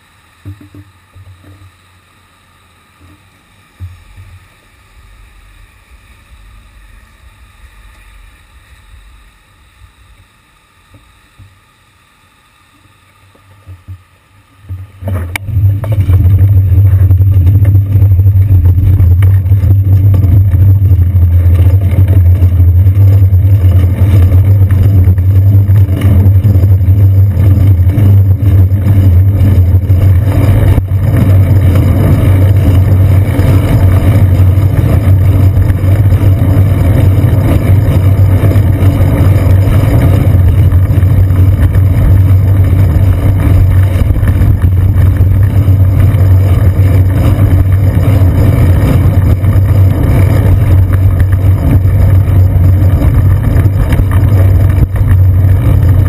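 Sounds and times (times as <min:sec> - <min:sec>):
bicycle riding on wet street: 0:12.2 - 0:56.0
wind on camera: 0:13.3 - 0:56.0.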